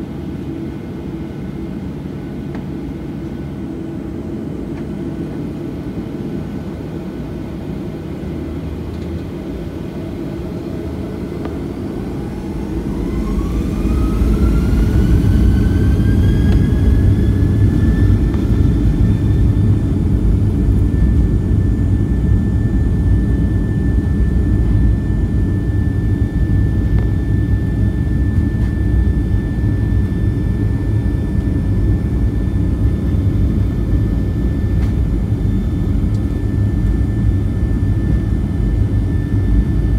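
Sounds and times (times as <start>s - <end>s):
rising jet engine whine: 0.0s - 39.9s
jet engines spooling up: 8.3s - 39.9s
deep rumble: 11.3s - 39.9s.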